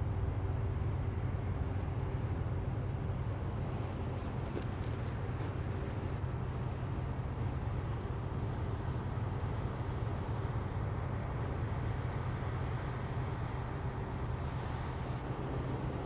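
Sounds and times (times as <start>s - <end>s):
ship engine drone: 0.0s - 16.0s.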